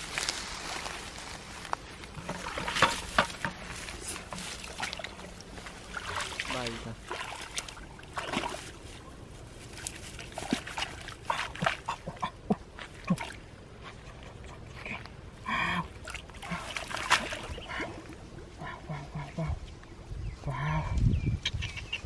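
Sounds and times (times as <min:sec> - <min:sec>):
rustling pond weed stems: 0:00.0 - 0:14.0
hands splashing in muddy water: 0:04.2 - 0:13.5, 0:16.0 - 0:18.0.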